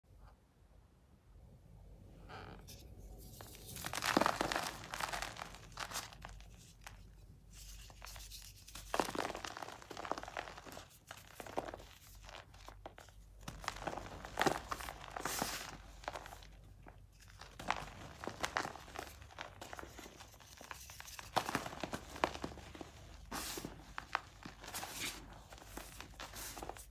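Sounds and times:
chalk crunching in hands: 0:03.2 - 0:26.9.

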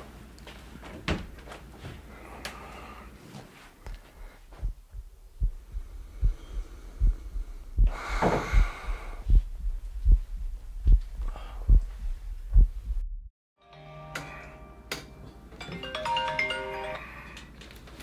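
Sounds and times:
heartbeat thudding: 0:04.4 - 0:13.3
loud breath: 0:05.7 - 0:09.4, 0:11.2 - 0:12.0.

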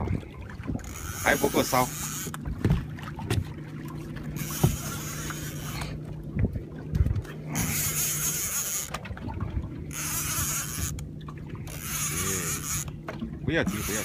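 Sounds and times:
boat motor humming: 0:00.0 - 0:14.0
dull knocks: 0:02.6 - 0:03.5.

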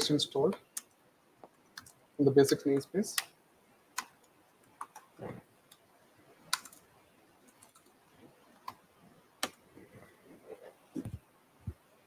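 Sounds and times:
laptop keyboard keystrokes: 0:01.7 - 0:02.0, 0:04.0 - 0:05.1, 0:06.5 - 0:06.9, 0:07.5 - 0:07.9, 0:09.4 - 0:09.6.

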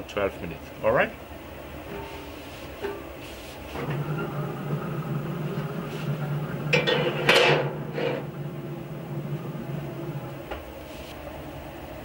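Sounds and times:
grill low hum: 0:00.0 - 0:12.0
metal griddle clanking on grates: 0:03.8 - 0:10.3.

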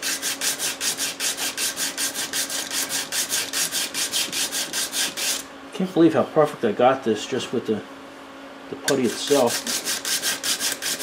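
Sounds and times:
sanding block rasping on filler: 0:00.0 - 0:05.4, 0:09.0 - 0:11.0.

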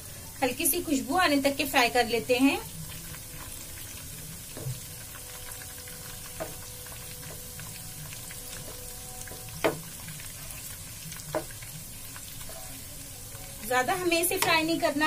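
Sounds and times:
nuts sizzling in ghee: 0:00.0 - 0:15.0
wooden spatula knocking pan: 0:06.4 - 0:06.6, 0:08.6 - 0:09.9, 0:11.3 - 0:11.6.

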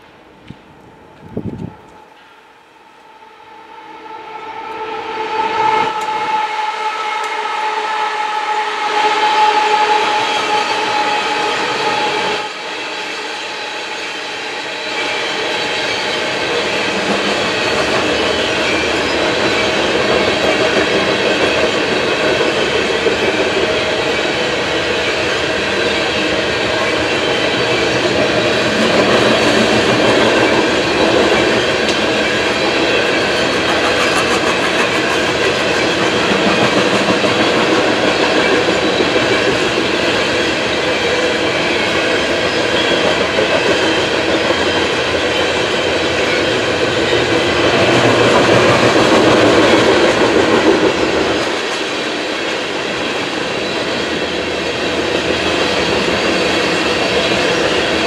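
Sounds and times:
train horn blast: 0:03.1 - 0:12.6
train wheels clacking on rails: 0:08.4 - 0:58.0.

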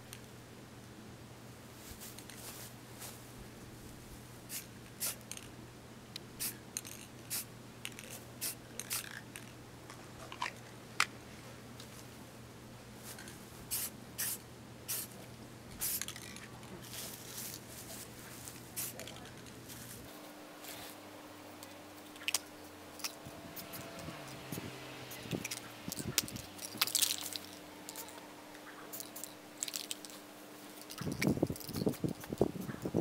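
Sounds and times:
spray paint can hissing: 0:04.5 - 0:05.4, 0:06.4 - 0:09.5, 0:13.7 - 0:15.2, 0:15.8 - 0:16.4, 0:18.8 - 0:19.2, 0:23.0 - 0:28.2, 0:28.9 - 0:30.1, 0:30.8 - 0:33.0.

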